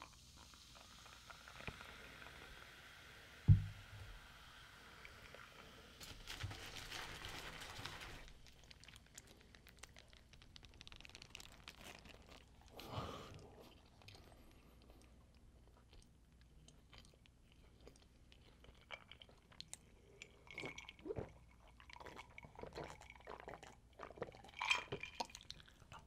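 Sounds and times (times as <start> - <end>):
plastic bottle thump on table: 3.5 - 3.8
paper wrapper crinkling: 6.0 - 12.8.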